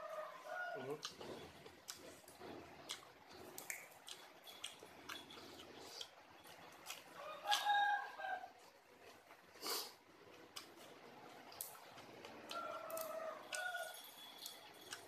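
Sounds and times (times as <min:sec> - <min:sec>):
rooster crowing: 0:00.0 - 0:01.0, 0:07.1 - 0:08.6, 0:12.5 - 0:14.1
leafy greens being chewed: 0:00.1 - 0:15.0.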